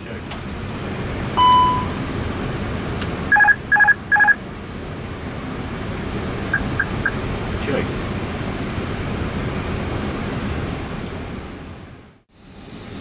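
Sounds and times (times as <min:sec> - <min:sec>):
two-tone electronic beeps: 0:01.4 - 0:02.0, 0:03.3 - 0:04.4, 0:06.5 - 0:07.2.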